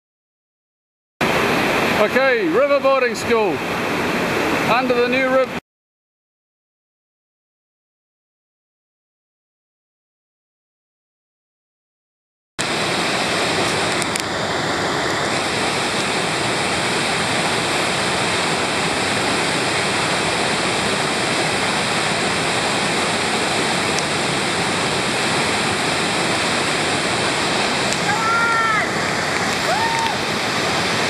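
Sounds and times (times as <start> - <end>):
water rushing over dam: 1.2 - 5.6, 12.6 - 31.0.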